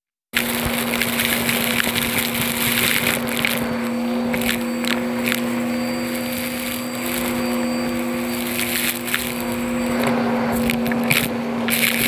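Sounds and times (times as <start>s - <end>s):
debris rattling up vacuum wand: 0.4s - 12.0s
vacuum cleaner motor hum: 0.4s - 12.0s.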